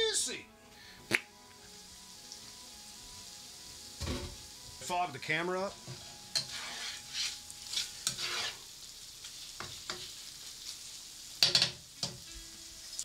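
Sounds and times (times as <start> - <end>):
food sizzling: 0.0 - 13.0
spatula scraping skillet: 5.8 - 12.2.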